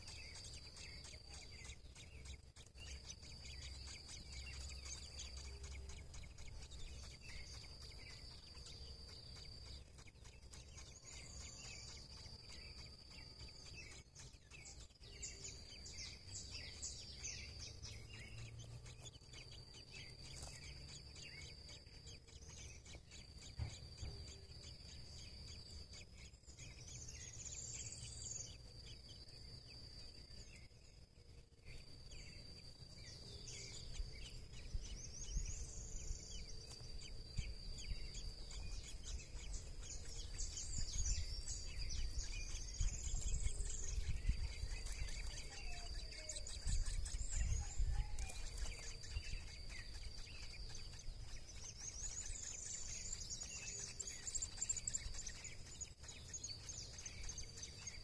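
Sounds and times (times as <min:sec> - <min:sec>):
birds chirping: 0:00.0 - 0:58.0
high-pitched insect trill: 0:00.0 - 0:58.0.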